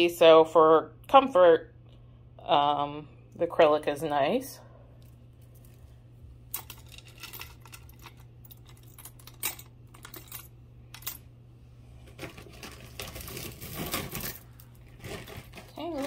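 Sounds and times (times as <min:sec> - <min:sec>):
beads and chains clinking: 0:06.5 - 0:11.2.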